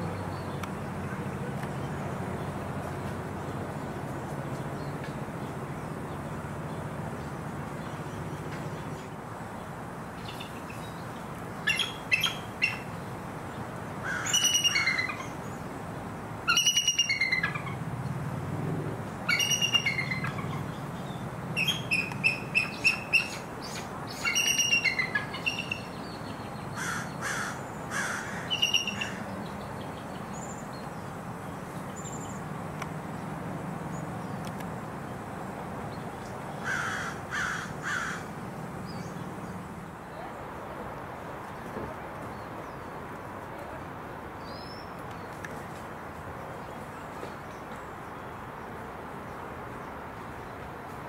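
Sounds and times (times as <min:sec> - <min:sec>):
eagle piping chirps and squeals: 0:11.7 - 0:12.9, 0:14.2 - 0:15.3, 0:16.5 - 0:17.8, 0:19.3 - 0:20.7, 0:21.6 - 0:25.9, 0:28.5 - 0:29.2.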